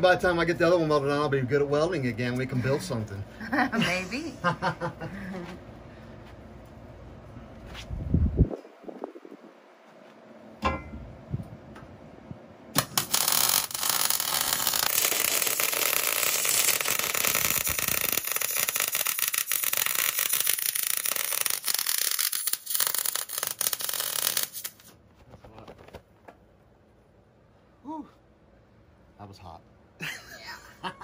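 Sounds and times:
welding arc crackling: 0:12.7 - 0:25.0.

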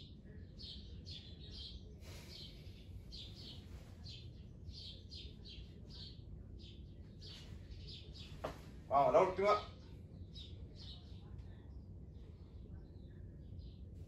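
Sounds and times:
small bird chirping: 0:00.0 - 0:08.6
low background rumble: 0:00.0 - 0:14.0.

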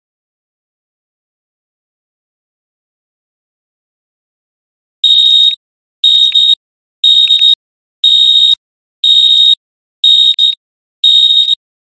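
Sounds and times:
high-pitched timer alarm beeps: 0:05.0 - 0:11.6.

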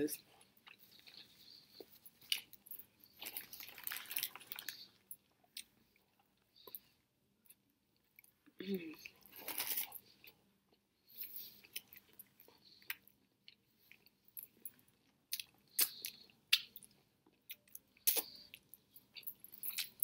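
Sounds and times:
person chewing food: 0:00.4 - 0:20.0
wet mouth clicks and smacks: 0:15.3 - 0:16.8.

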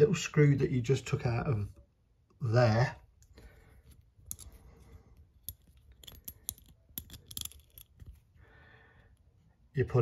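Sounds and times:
small metal parts clinking: 0:03.3 - 0:08.4.

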